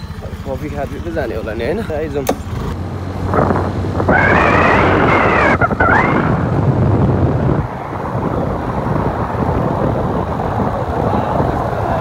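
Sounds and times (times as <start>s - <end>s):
motor scooter engine whine: 0.0s - 12.0s
wind rushing over microphone: 2.7s - 12.0s.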